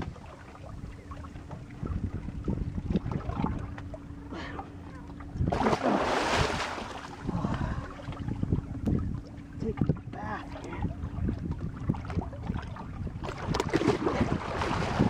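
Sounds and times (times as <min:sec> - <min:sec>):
wind buffeting microphone: 0:00.0 - 0:04.2, 0:05.2 - 0:15.0
fish thrashing and splashing: 0:05.5 - 0:07.2, 0:13.2 - 0:15.0.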